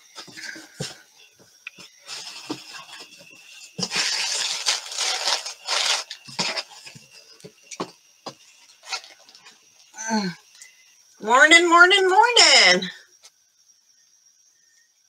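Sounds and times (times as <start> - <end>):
rustling and crinkling: 0.0 - 9.6.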